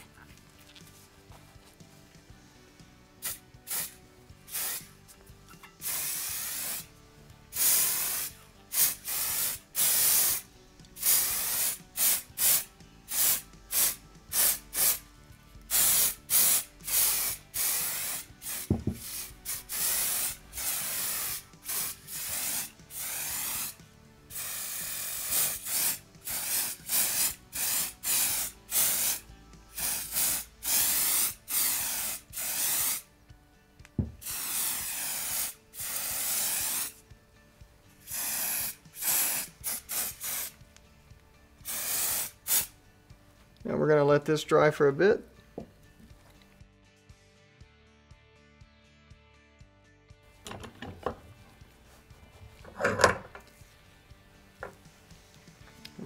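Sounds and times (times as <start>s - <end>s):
aerosol can spraying: 3.2s - 5.0s, 5.8s - 6.9s, 7.5s - 15.0s, 15.7s - 33.1s, 34.0s - 37.0s, 38.0s - 40.6s, 41.6s - 42.7s.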